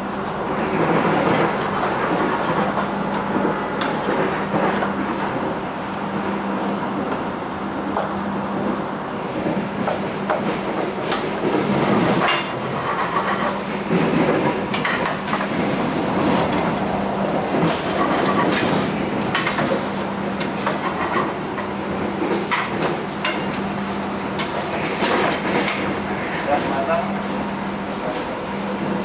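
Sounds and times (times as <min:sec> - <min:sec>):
moving train running noise: 0:00.0 - 0:29.0.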